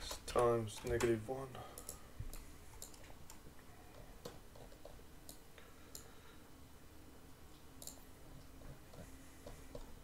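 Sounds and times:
computer mouse clicks: 1.8s - 6.1s, 7.8s - 8.0s.

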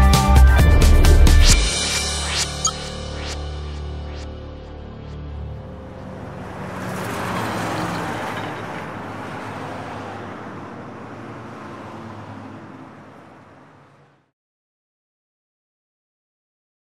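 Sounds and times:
truck engine driving away: 2.6s - 14.2s.

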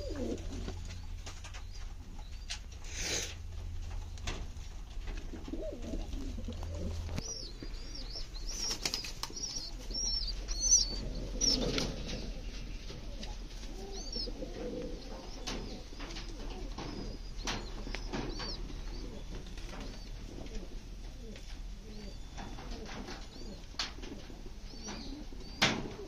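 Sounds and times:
pigeons cooing: 0.0s - 26.0s.

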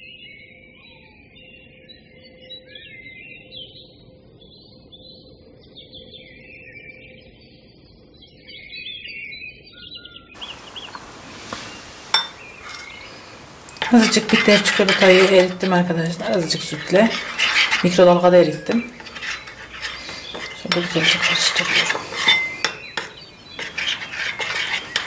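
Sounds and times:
birds chirping: 10.4s - 25.0s
spoon clinking ceramic bowl: 10.4s - 25.0s.

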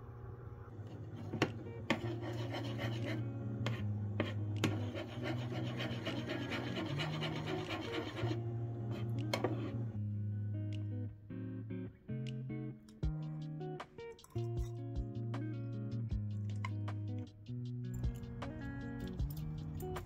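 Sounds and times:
rubbing rasping sound: 1.9s - 9.8s
background music with bass line: 10.1s - 20.0s.

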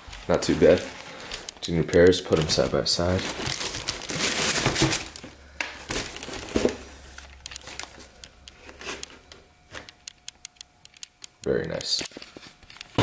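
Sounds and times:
paper crinkling and rustling: 0.0s - 9.9s
small knocks and clicks: 7.4s - 13.0s.

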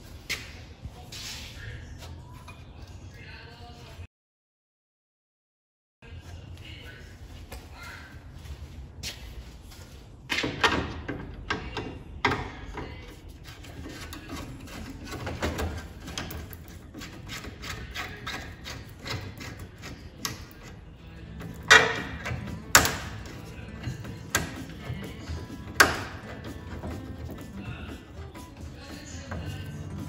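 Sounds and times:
metal clunks: 21.4s - 27.5s.

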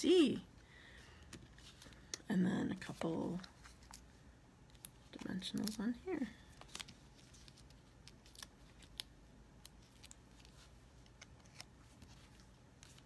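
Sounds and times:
paper rustling: 6.5s - 9.1s.

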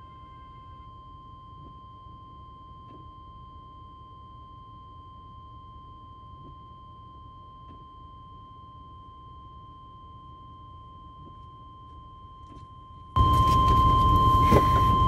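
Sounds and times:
high-pitched electronic tone: 13.2s - 15.0s.

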